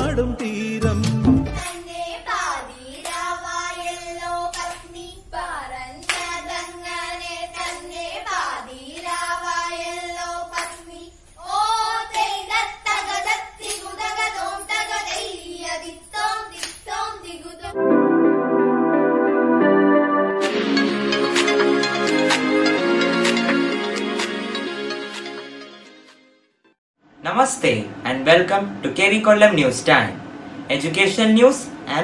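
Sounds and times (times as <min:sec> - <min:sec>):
girls singing together: 0:01.5 - 0:17.8
hand claps: 0:06.0 - 0:06.4
electronic keyboard music: 0:17.7 - 0:26.4.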